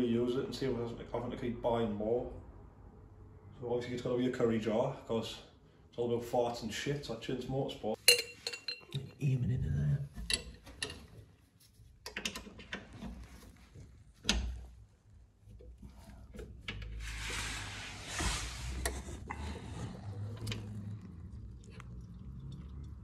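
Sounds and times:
small clicks and knocks: 12.0 - 14.8
short rustle: 17.0 - 19.2.

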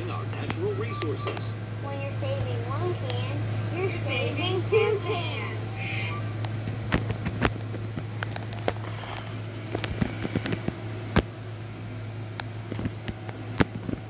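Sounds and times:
steady low hum: 0.0 - 14.0
sharp clicks and crackles: 6.4 - 11.4, 12.3 - 14.0.

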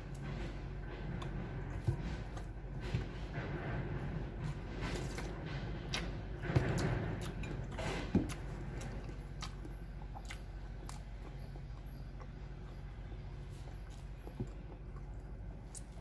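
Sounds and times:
chewing and lip-smacking: 7.2 - 12.8.

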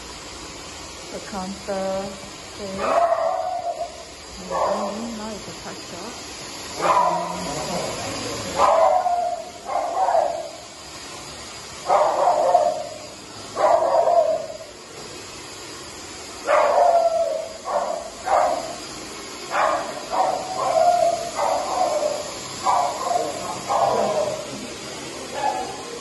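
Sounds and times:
small dog barking: 2.8 - 5.0, 6.8 - 7.6, 8.6 - 10.5, 11.8 - 13.0, 13.6 - 14.5, 16.5 - 18.8, 19.5 - 24.5, 25.3 - 25.8.

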